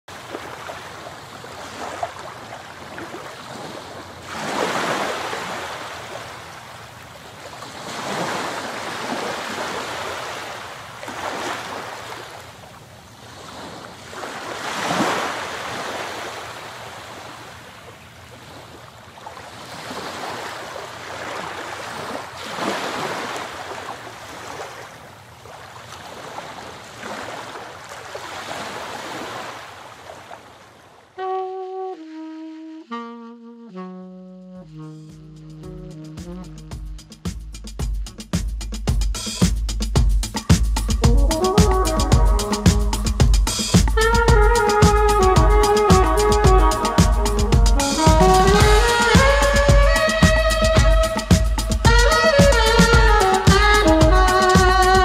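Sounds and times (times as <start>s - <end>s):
rush of water: 0.1s - 31.2s
waves washing ashore: 0.1s - 32.2s, 40.4s - 55.0s.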